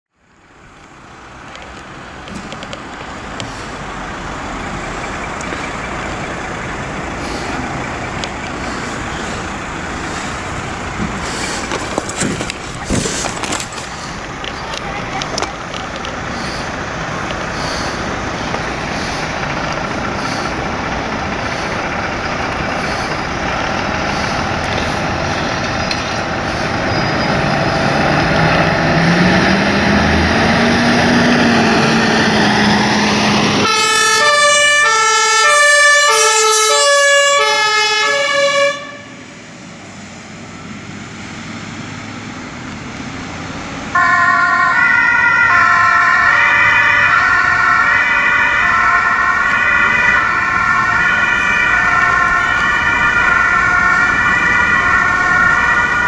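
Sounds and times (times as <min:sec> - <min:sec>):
diesel engines running: 0:00.2 - 0:56.0
higher two-tone siren: 0:33.6 - 0:39.4, 0:44.0 - 0:56.0
two-tone siren: 0:33.6 - 0:39.4, 0:44.0 - 0:56.0.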